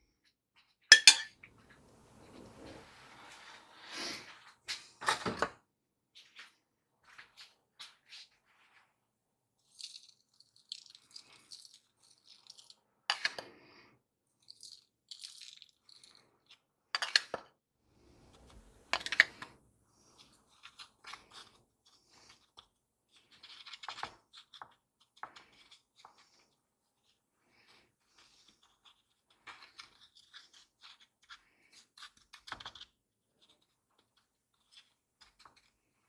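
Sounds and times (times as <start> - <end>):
spatula scraping and patting: 0.2 - 5.4, 6.1 - 8.9, 14.4 - 36.0
glass bowl clinks and knocks: 0.9 - 1.4.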